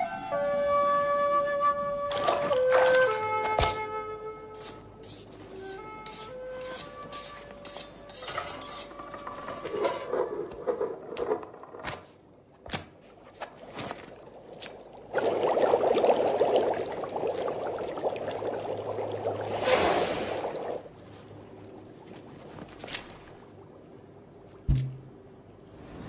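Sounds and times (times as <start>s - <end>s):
water pouring into a pan: 13.7s - 20.9s.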